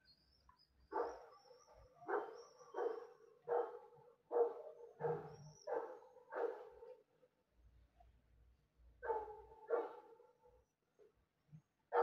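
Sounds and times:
dog barking: 0:00.9 - 0:01.3, 0:02.0 - 0:07.0, 0:09.0 - 0:10.2.

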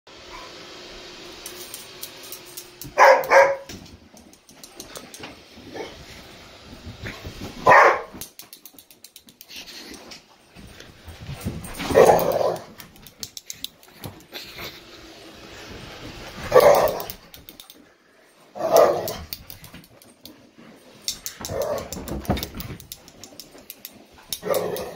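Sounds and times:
dog barking: 0:03.0 - 0:03.7, 0:07.6 - 0:08.1, 0:16.5 - 0:17.0.

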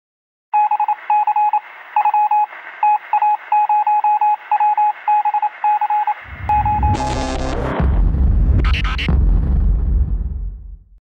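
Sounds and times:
morse-like electronic beeps: 0:00.6 - 0:07.8.

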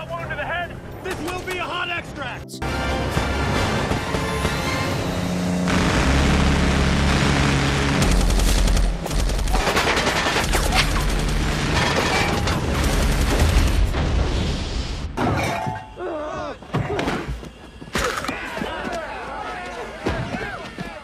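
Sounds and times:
dramatic music score: 0:01.1 - 0:09.5
rapid automatic gunfire: 0:05.7 - 0:11.9, 0:12.7 - 0:13.8.

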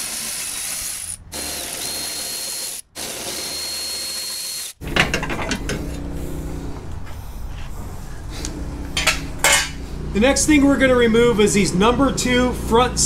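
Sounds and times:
electric ratchet whirring: 0:00.0 - 0:04.8
metal clanks and rattles: 0:04.8 - 0:06.1, 0:08.9 - 0:09.8.

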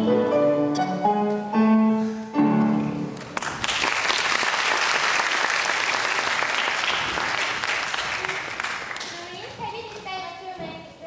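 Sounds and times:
song with piano accompaniment: 0:00.0 - 0:03.4
audience applause: 0:03.2 - 0:09.2.

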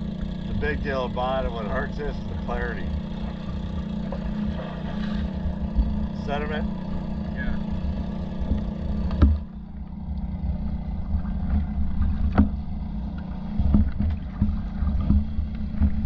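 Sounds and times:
steady low hum: 0:00.0 - 0:16.0
water sloshing against camera: 0:00.0 - 0:16.0
sharp knocks: 0:08.5 - 0:09.6, 0:12.0 - 0:12.6.

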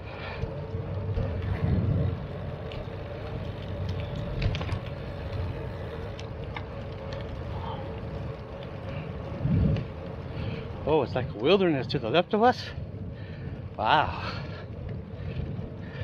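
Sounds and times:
steady hum: 0:00.0 - 0:11.5
bicycle rolling noise: 0:00.0 - 0:16.0
wind buffeting microphone: 0:00.0 - 0:16.0
light clicks and rattles: 0:02.6 - 0:07.9.

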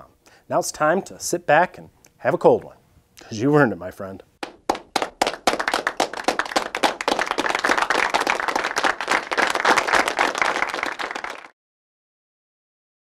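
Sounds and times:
hands clapping: 0:04.4 - 0:11.6.

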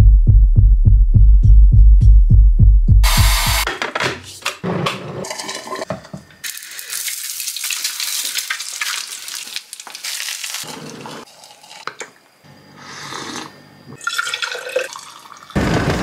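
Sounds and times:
food sizzling in a pan: 0:06.4 - 0:11.8.

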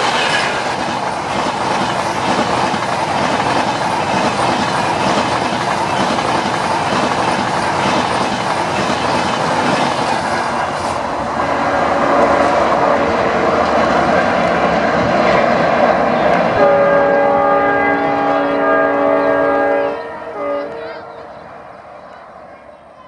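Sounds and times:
train wheels rushing on rails: 0:00.0 - 0:23.0
train horn chord: 0:11.4 - 0:13.5, 0:16.6 - 0:21.6.

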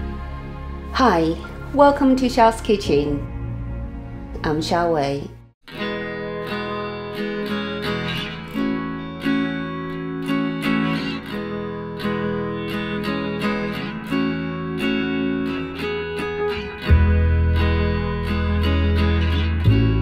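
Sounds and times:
strummed acoustic guitar: 0:05.7 - 0:20.0.

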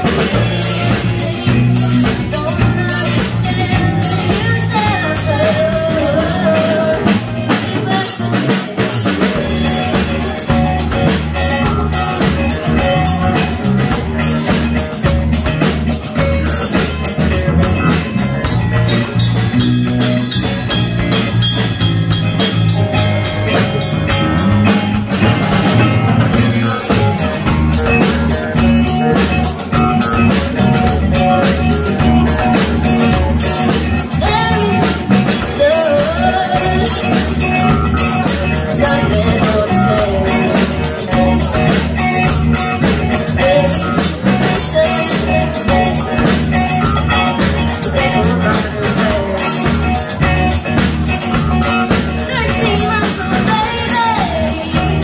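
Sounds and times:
bass guitar: 0:00.0 - 0:55.0
drum kit beat: 0:00.0 - 0:55.0
electric guitar: 0:00.0 - 0:55.0
keyboard: 0:00.0 - 0:55.0
lead vocal singing: 0:34.1 - 0:37.6, 0:38.2 - 0:41.3, 0:43.1 - 0:50.0.

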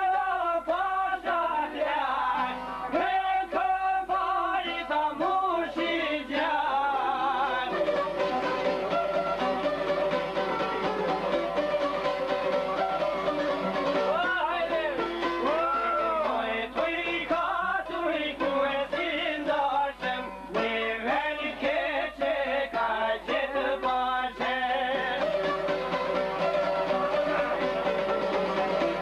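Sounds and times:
man singing: 0:00.0 - 0:08.0, 0:14.1 - 0:25.5, 0:26.5 - 0:28.2
plucked lute playing tune: 0:06.1 - 0:21.0, 0:21.8 - 0:29.0.

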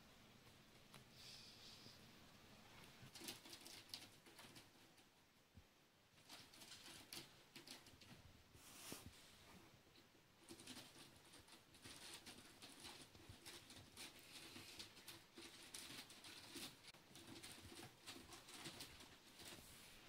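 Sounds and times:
claws scratching a post: 0:10.4 - 0:19.6.

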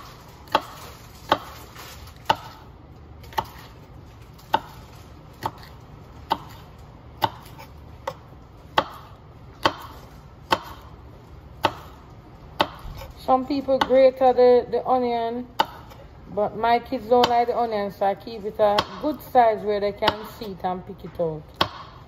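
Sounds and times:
knife chopping on wooden board: 0:00.0 - 0:03.8, 0:04.4 - 0:04.8, 0:05.4 - 0:11.0, 0:11.6 - 0:13.1, 0:15.6 - 0:16.0, 0:18.7 - 0:19.2, 0:21.5 - 0:22.0.

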